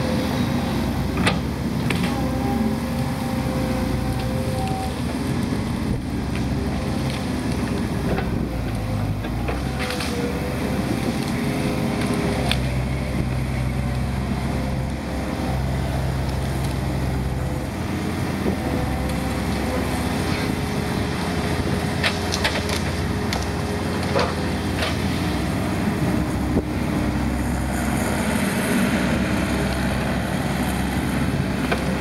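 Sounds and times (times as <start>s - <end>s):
excavator diesel engine under load: 0.0s - 32.0s
branches cracking and knocking: 6.0s - 14.0s, 21.0s - 28.1s.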